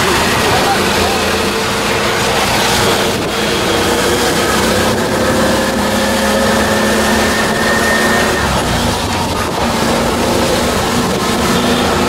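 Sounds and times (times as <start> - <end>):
auto-rickshaw engine running: 0.0 - 12.0
tyres hissing on wet road: 0.0 - 12.0.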